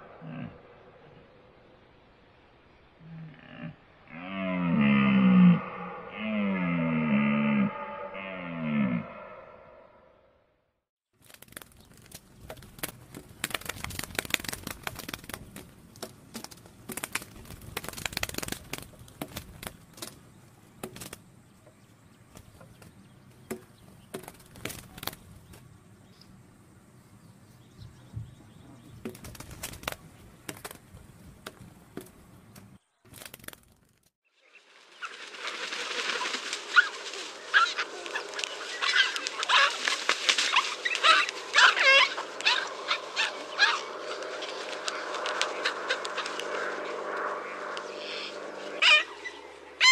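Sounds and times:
irregular clicks and crackles: 11.2 - 21.3, 35.0 - 41.6, 44.1 - 47.9
chorus of honking bird calls: 35.9 - 46.6, 48.0 - 49.9.

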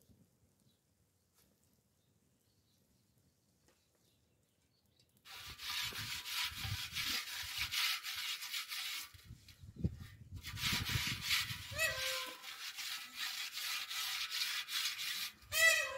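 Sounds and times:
hand scraping metal pot: 5.3 - 15.9.

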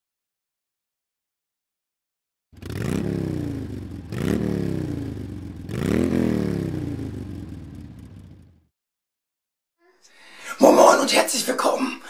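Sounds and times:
motorcycle engine revving: 2.5 - 8.7.

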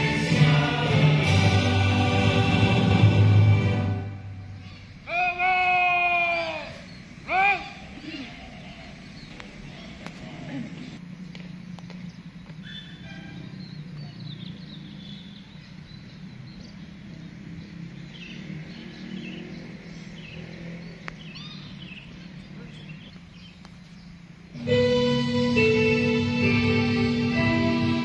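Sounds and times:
birds chirping: 4.1 - 24.6
low outdoor rumble: 21.1 - 28.0.

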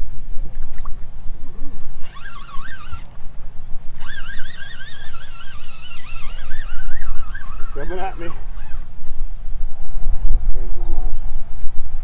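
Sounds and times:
wind rumbling on microphone: 0.0 - 12.0
fishing reel whining: 2.0 - 9.1.

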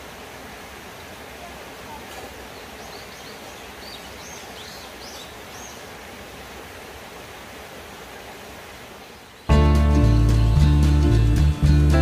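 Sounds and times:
stream running over rocks: 0.0 - 11.8
bird chirping: 2.6 - 5.8.

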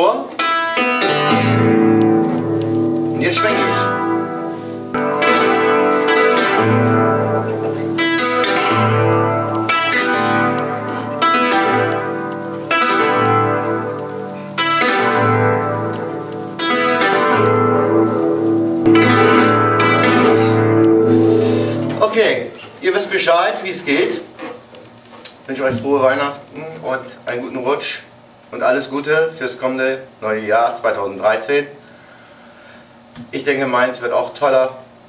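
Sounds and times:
classical guitar strings plucked: 0.4 - 22.6.

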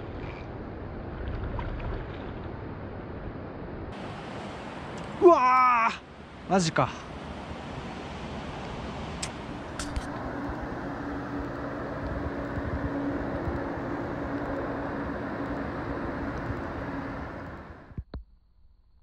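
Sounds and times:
river water rushing: 3.9 - 17.9.

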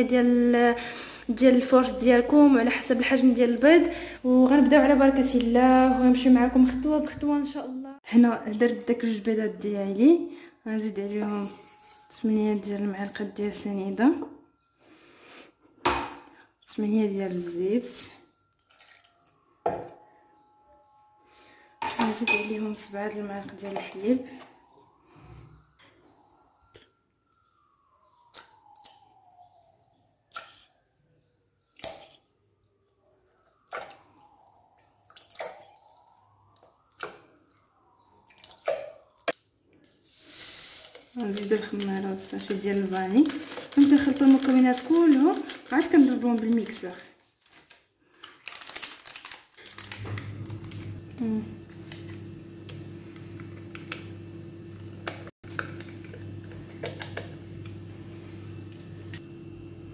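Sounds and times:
liquid trickling: 18.5 - 19.3
paper sachets clicking and rustling: 40.3 - 52.1.

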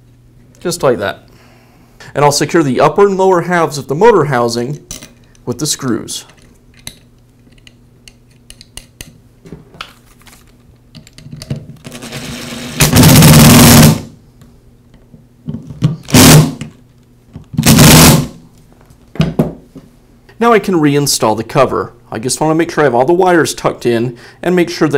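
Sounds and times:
impact driver hammering: 12.8 - 14.0, 16.1 - 16.7, 17.6 - 18.3.

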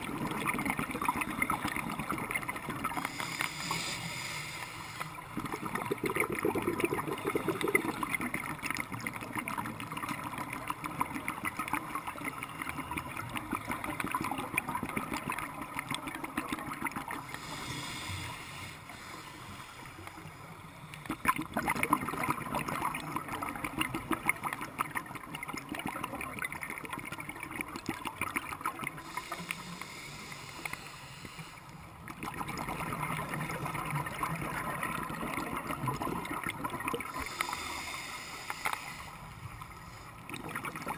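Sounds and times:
underwater bubbles gurgling: 0.0 - 40.9.

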